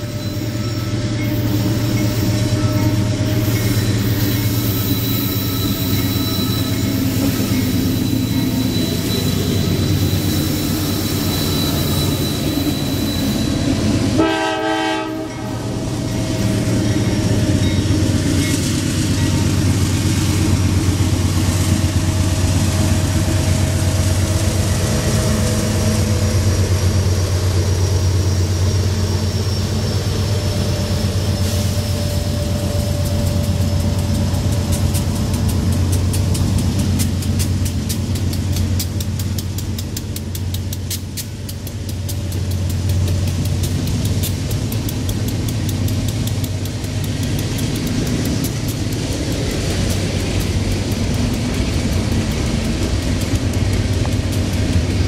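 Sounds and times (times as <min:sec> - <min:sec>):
train horn: 0:00.0 - 0:03.9, 0:14.1 - 0:15.8
diesel locomotive rumble: 0:00.0 - 0:55.0.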